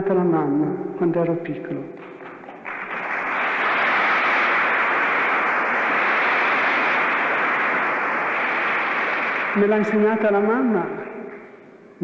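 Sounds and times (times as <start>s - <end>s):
muffled audience applause: 2.0s - 10.3s.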